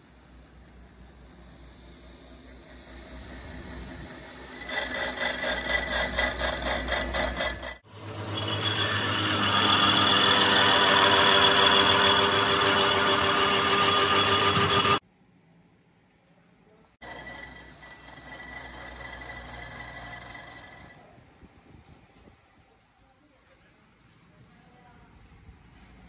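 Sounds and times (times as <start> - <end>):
lathe grinder grinding with whine: 0.3 - 15.0, 17.0 - 21.0
pulsing rattle: 0.3 - 15.0.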